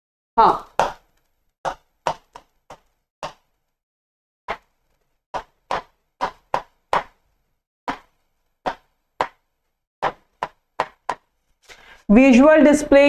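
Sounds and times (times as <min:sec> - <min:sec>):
pen tapping on whiteboard screen: 0:00.8 - 0:03.7, 0:04.5 - 0:07.3, 0:07.9 - 0:11.3.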